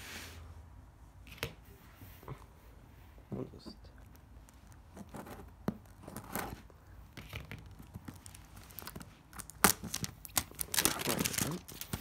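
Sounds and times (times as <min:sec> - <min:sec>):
plastic wrap crinkling: 0:07.3 - 0:12.0.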